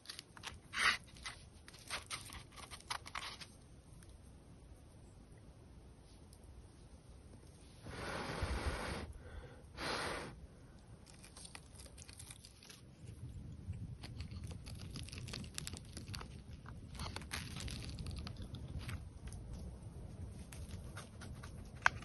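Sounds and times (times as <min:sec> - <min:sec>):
small crinkles and clicks: 0:00.0 - 0:04.2, 0:11.0 - 0:22.0.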